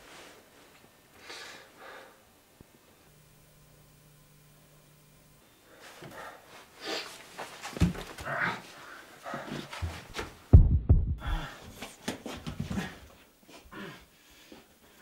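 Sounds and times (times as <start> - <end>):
heavy low thuds: 10.5 - 11.6
man breathing hard and gasping: 11.2 - 11.9.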